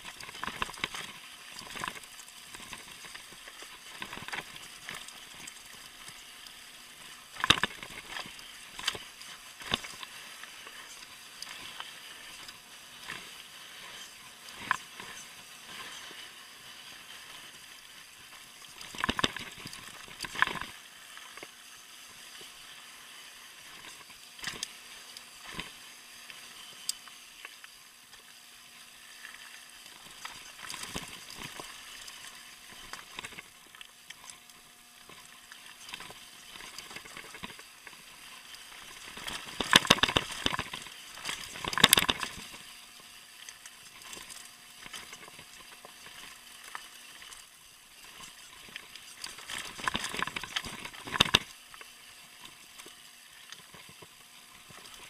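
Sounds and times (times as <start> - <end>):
bike knocking and rattling on rocks: 7.4 - 8.0, 18.9 - 19.6, 20.2 - 20.7, 39.5 - 42.5, 49.7 - 51.5.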